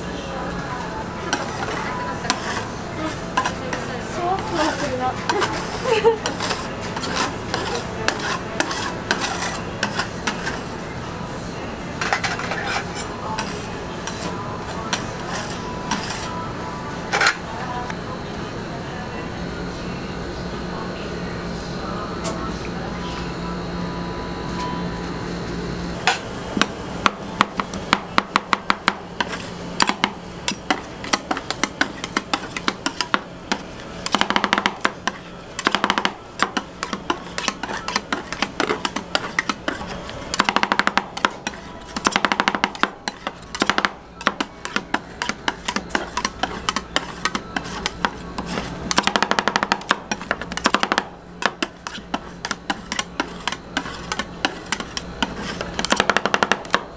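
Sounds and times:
steady hum: 0.0 - 56.9
metal spatulas chopping on steel: 1.3 - 10.6, 12.0 - 16.3, 26.0 - 56.9.

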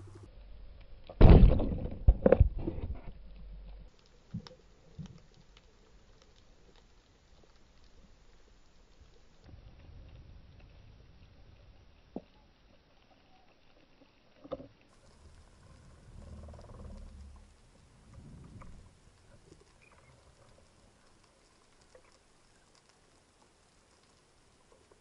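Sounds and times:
faint crackling clicks underwater: 2.2 - 25.0
underwater rush of water: 14.9 - 25.0.

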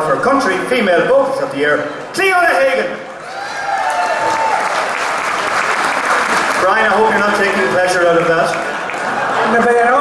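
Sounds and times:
audience applauding: 3.2 - 10.0.

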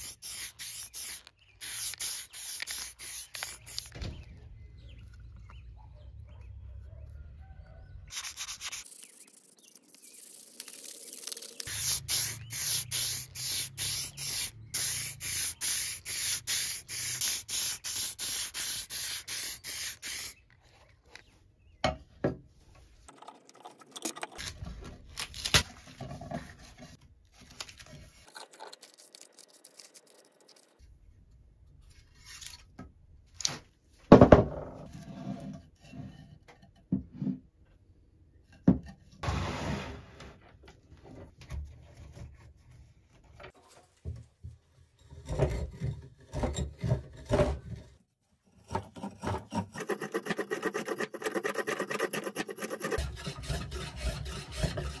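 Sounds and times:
handling scrapes and clicks: 0.1 - 4.0, 26.4 - 30.8.

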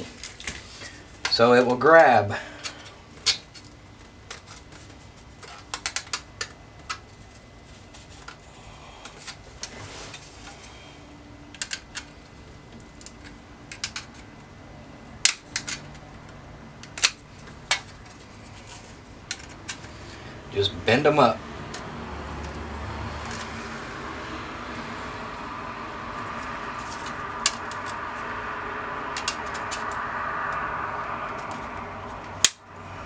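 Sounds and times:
metal and plastic clicks: 13.0 - 14.3, 15.2 - 16.0
clips snapping: 15.2 - 16.0.

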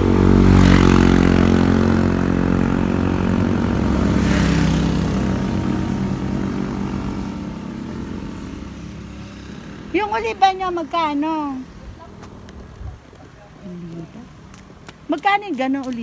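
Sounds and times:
vehicle rushing past: 0.0 - 12.5
vehicle engine: 0.0 - 15.1.

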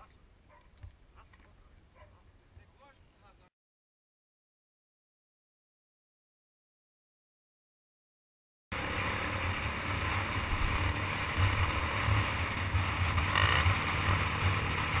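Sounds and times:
dirt bike engine rumbling: 8.7 - 15.0
wind noise on microphone: 8.8 - 15.0.

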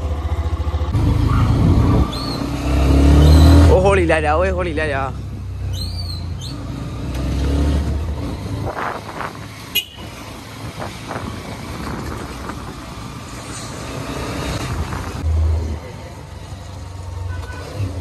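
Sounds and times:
motorcycle engine running: 0.0 - 7.0
horn toot: 9.7 - 10.2.

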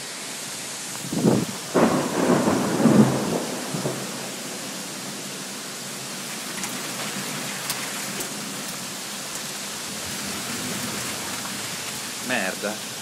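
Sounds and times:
heavy rain hissing: 0.0 - 13.0
thunder rumbling: 1.0 - 5.3.

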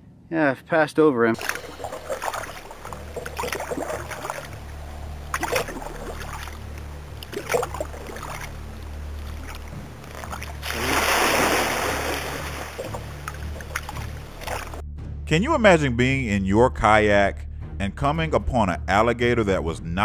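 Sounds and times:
paddle knocks and drips: 1.4 - 14.8
paddle splashing through water: 1.4 - 14.8
low steady hum: 1.4 - 18.1.

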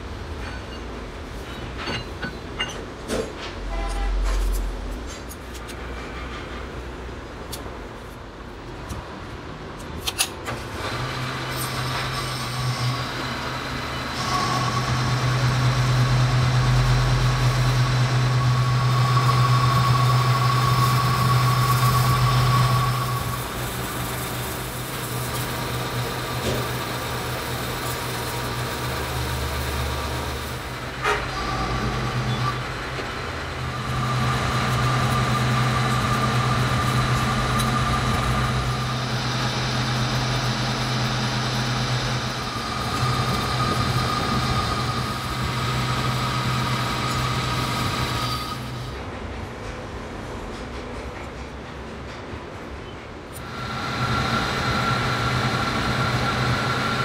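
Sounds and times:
lathe motor hum: 10.9 - 48.9, 53.4 - 57.0
high whine of cutting tool: 11.6 - 25.8, 33.6 - 48.9, 53.4 - 57.0.

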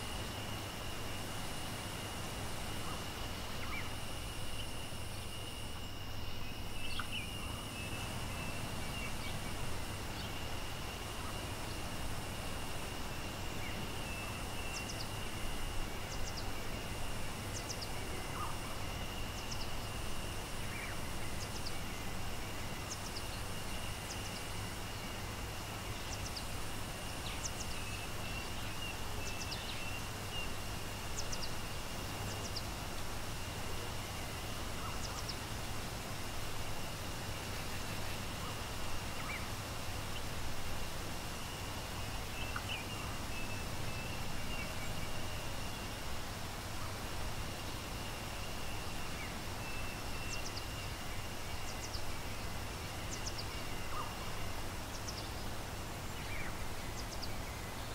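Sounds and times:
birds chirping: 0.0 - 57.9.

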